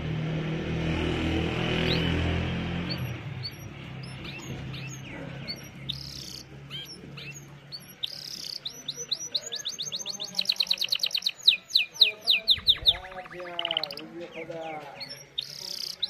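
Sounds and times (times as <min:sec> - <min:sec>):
canary singing: 0:01.2 - 0:16.0.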